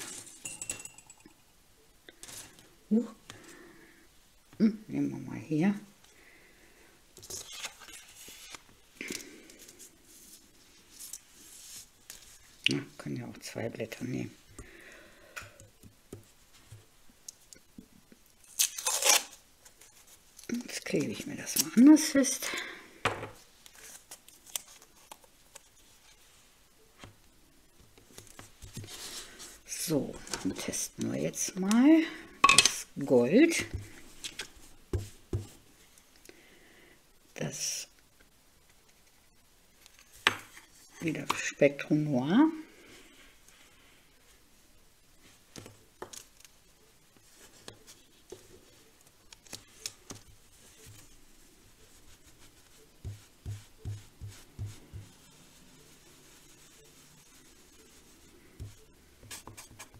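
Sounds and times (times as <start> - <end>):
hands handling paper and tape: 7.2 - 12.6, 18.4 - 21.9, 23.4 - 26.4, 45.5 - 59.9
brush tapping and scuffing on card: 34.9 - 35.6, 51.8 - 59.9.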